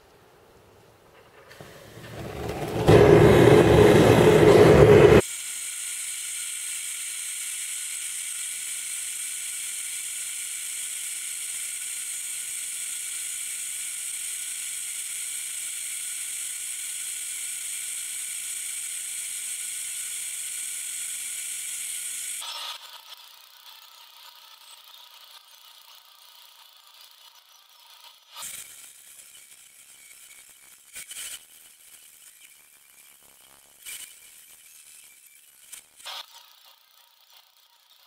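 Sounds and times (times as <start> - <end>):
gas burner hissing: 1.1 - 22.5.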